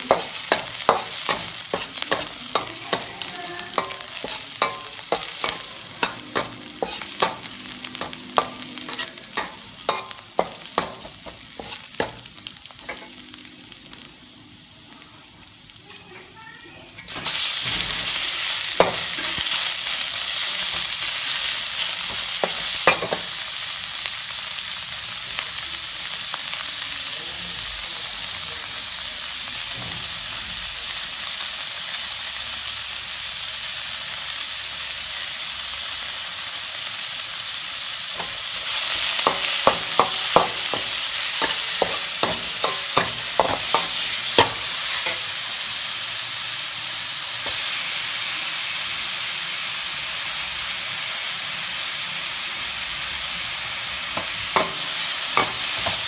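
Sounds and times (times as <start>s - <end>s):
spatula scraping a wok: 0.0s - 13.1s, 38.2s - 45.4s
beef sizzling in hot oil: 0.0s - 56.0s
spatula knocking on wok: 0.1s - 3.1s, 3.8s - 12.3s, 39.2s - 45.2s.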